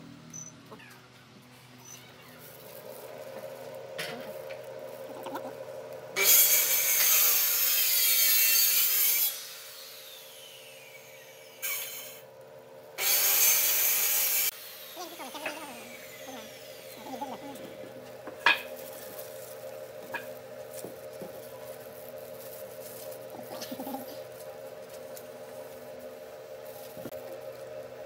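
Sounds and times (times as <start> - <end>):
wood lathe motor hum: 13.0 - 28.0.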